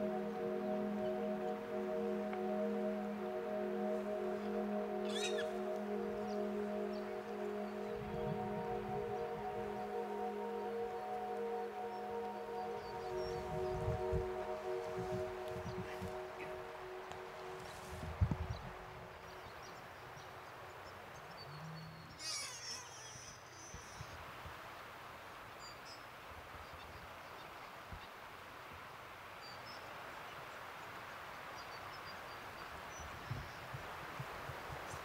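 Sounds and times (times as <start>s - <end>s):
animal call: 5.0s - 5.5s, 21.6s - 24.0s
faint bird chirps: 5.0s - 8.4s, 21.4s - 24.2s.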